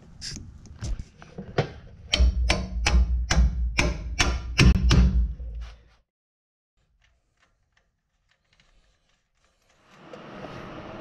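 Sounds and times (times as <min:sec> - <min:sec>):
hammer striking steel bolt: 0:02.1 - 0:05.4.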